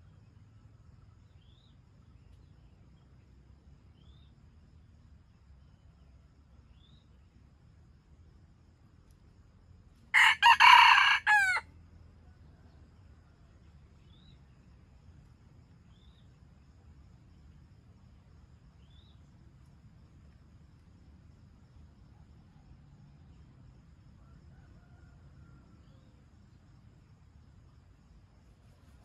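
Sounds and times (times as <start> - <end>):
rooster crowing: 10.1 - 11.7, 24.2 - 26.1.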